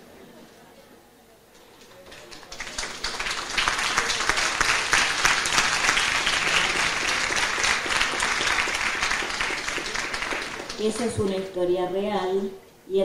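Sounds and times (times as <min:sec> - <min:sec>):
audience applauding: 0:01.7 - 0:11.5.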